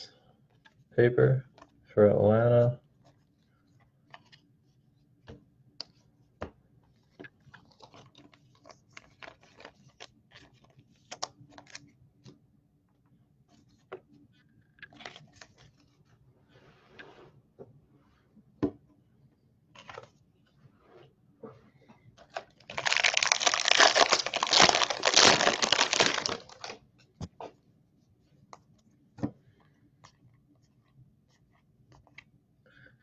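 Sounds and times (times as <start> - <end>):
trading cards clicking and rustling: 22.2 - 26.8.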